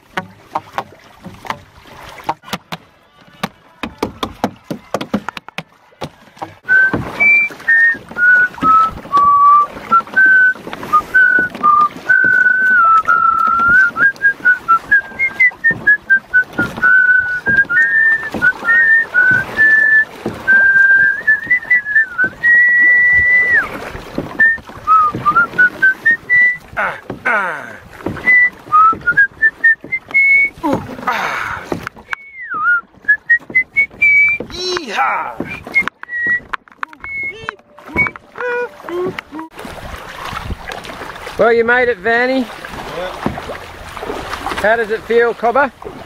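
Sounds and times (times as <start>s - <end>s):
man whistling a tune: 6.6s - 23.8s, 24.4s - 26.7s, 28.2s - 30.6s, 32.1s - 34.5s, 35.4s - 39.5s.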